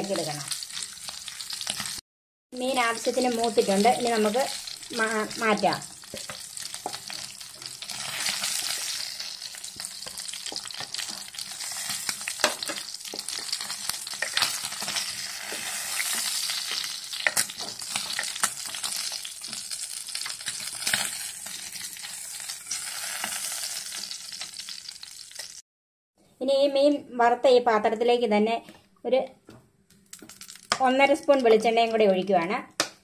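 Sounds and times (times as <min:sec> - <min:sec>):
fish sizzling in hot oil: 0:00.0 - 0:02.0, 0:02.6 - 0:25.6, 0:30.1 - 0:30.8
spatula knocking and scraping pan: 0:06.0 - 0:18.5.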